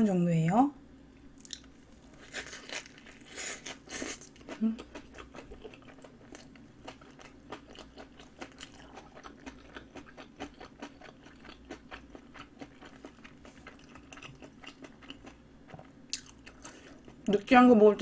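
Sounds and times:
person chewing food: 0:01.4 - 0:17.3.

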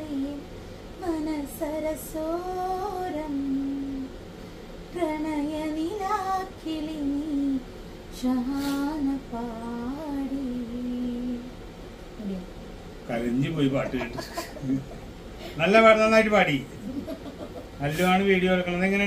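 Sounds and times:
woman singing: 0:00.0 - 0:04.2, 0:04.9 - 0:11.5.

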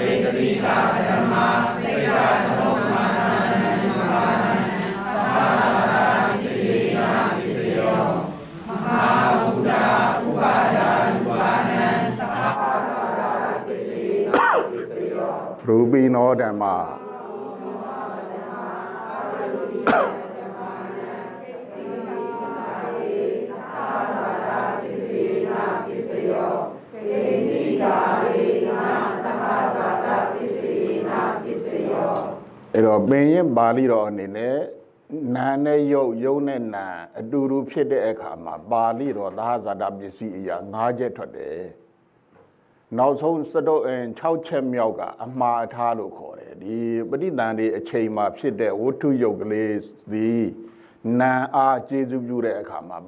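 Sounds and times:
group chanting in unison: 0:00.0 - 0:15.7, 0:16.6 - 0:32.5.

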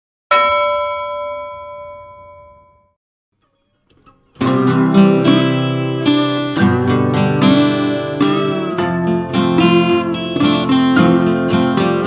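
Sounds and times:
bell-like chime ringing: 0:00.3 - 0:03.0
acoustic guitar background music: 0:03.4 - 0:12.0.

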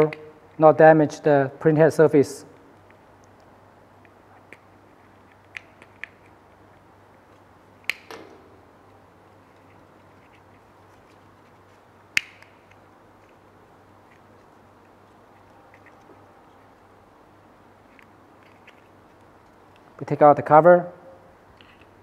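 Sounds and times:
faint low hum: 0:00.0 - 0:22.0
plastic clicks and snaps: 0:02.8 - 0:06.4, 0:07.8 - 0:08.4, 0:12.1 - 0:13.4.

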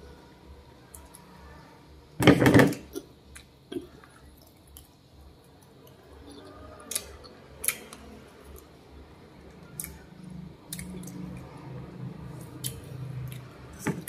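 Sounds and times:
wet mouth clicks and smacks: 0:09.7 - 0:10.0.

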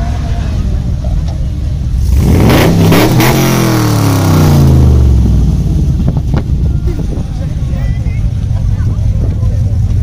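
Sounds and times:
car engine revving: 0:01.8 - 0:06.5.

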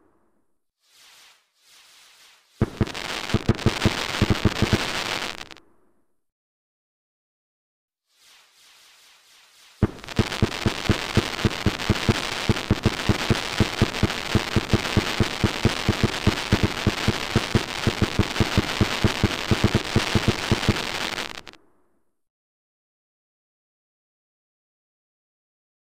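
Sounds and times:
fireworks barrage: 0:00.8 - 0:05.6, 0:08.2 - 0:21.6.

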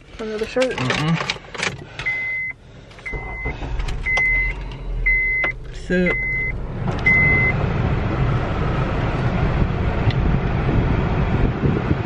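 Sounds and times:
car warning chime beep: 0:02.0 - 0:07.6.

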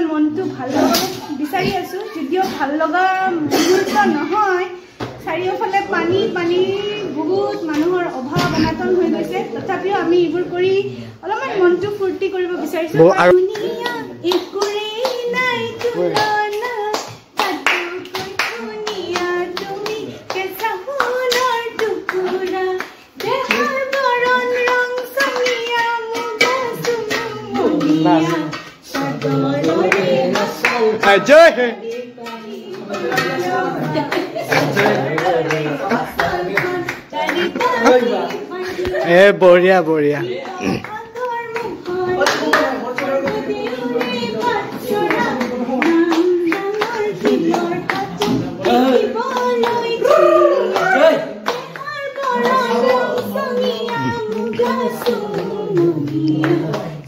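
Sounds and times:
people singing together: 0:00.0 - 0:57.0
hands clapping a steady beat: 0:13.0 - 0:39.2, 0:39.8 - 0:57.0
singing in long held notes: 0:41.6 - 0:57.0.

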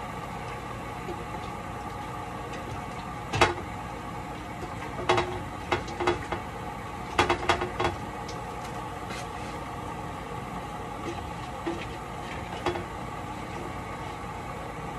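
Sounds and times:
steady background hum: 0:00.0 - 0:14.9
kitchen items clicking and knocking: 0:04.6 - 0:06.4, 0:07.1 - 0:08.0.

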